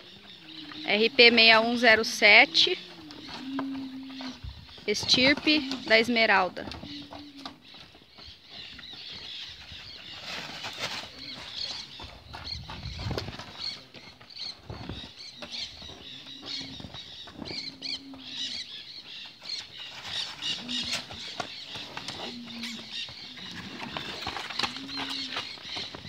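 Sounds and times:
small birds chirping: 0.0 - 26.0
wind noise on microphone: 12.2 - 13.4.

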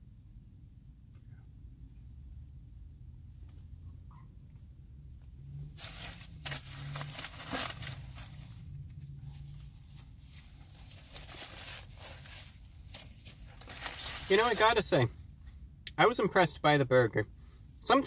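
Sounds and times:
paper wrapper rustling: 5.8 - 14.8.

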